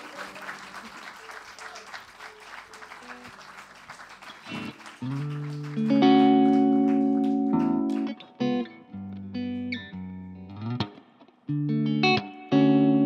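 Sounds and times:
audience applause: 0:00.0 - 0:08.2
electric guitar chords ringing: 0:04.5 - 0:13.0.

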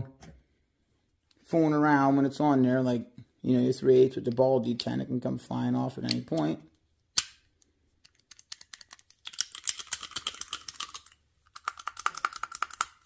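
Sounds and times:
metal clicking and rattling: 0:08.0 - 0:13.0.

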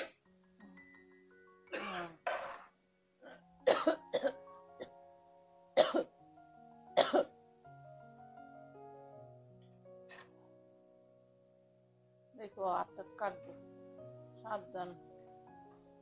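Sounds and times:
slow music with held notes: 0:00.0 - 0:16.0
person coughing: 0:01.7 - 0:02.2, 0:03.7 - 0:04.4, 0:05.8 - 0:06.1, 0:07.0 - 0:07.3.

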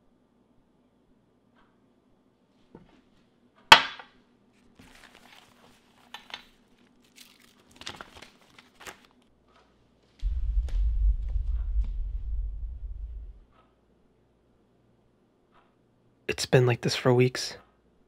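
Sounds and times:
faint room hum: 0:00.0 - 0:18.0
sharp knock: 0:03.7 - 0:04.1
paper rustling and crinkling: 0:04.6 - 0:09.3.

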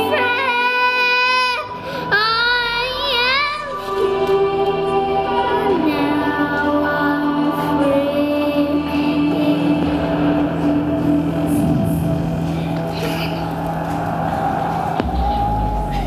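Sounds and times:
child singing into microphone: 0:00.0 - 0:10.8
background music: 0:00.0 - 0:16.0.

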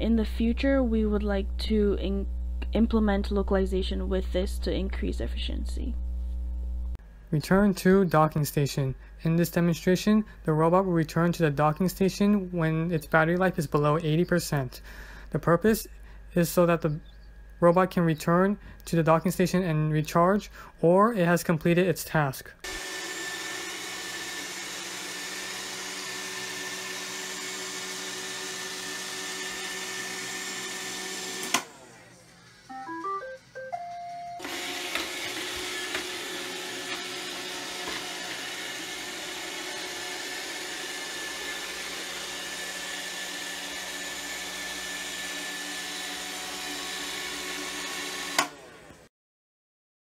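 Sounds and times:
robot vacuum motor hum: 0:22.6 - 0:32.0, 0:34.4 - 0:49.0
rising beeps and held tone: 0:32.7 - 0:34.4.

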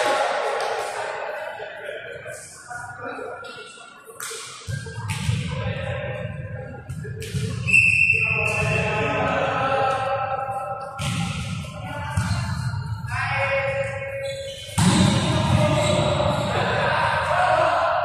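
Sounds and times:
players' voices: 0:00.0 - 0:18.0
volleyball thumping: 0:11.0 - 0:12.6.

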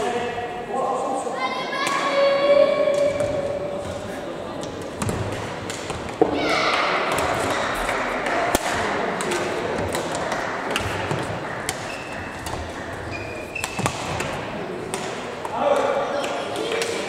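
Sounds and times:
murmur of sports hall: 0:00.0 - 0:17.0
racket striking shuttlecock: 0:04.6 - 0:17.0
shoes squeaking on court floor: 0:10.7 - 0:14.4.

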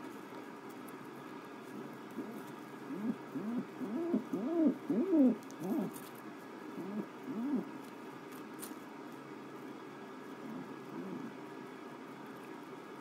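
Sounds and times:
dove cooing: 0:01.8 - 0:06.0, 0:06.7 - 0:07.8, 0:10.4 - 0:11.4.

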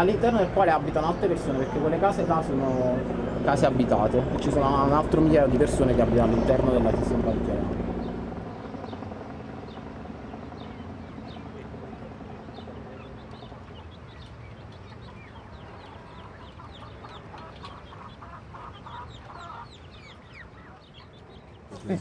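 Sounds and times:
hens clucking: 0:15.0 - 0:21.0.

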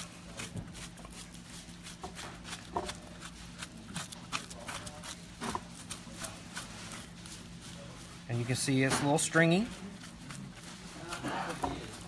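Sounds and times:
fork scraping squash flesh: 0:00.0 - 0:12.0.

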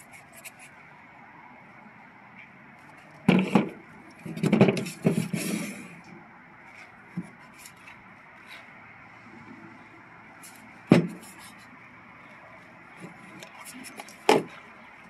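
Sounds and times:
cabinets scraping on table: 0:03.3 - 0:05.9.

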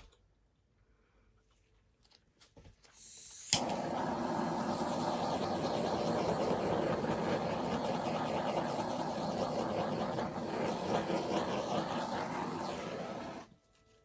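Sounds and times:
torch flame hissing: 0:03.0 - 0:13.5.

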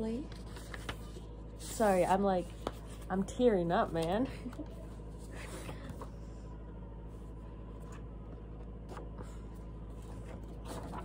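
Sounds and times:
steady low hum: 0:00.0 - 0:11.0
paper rustling: 0:00.3 - 0:03.1, 0:08.8 - 0:11.0.

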